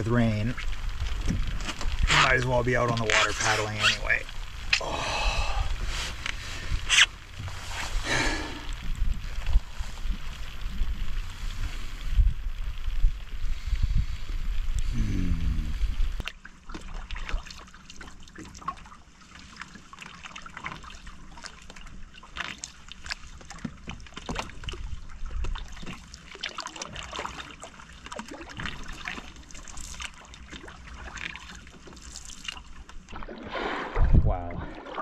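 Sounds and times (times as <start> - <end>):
water splashing around canoe: 0.0 - 14.9, 15.8 - 35.0
wind rumble on microphone: 0.0 - 16.3, 33.9 - 34.7.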